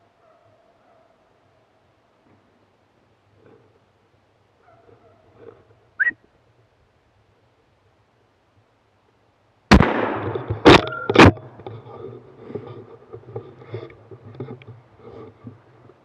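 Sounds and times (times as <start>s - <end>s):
rifle shot with echo: 9.7s - 10.9s.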